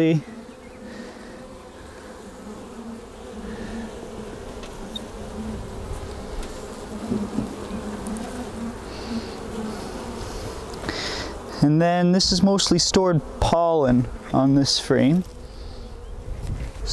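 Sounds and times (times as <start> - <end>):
bees buzzing: 0.0 - 16.9.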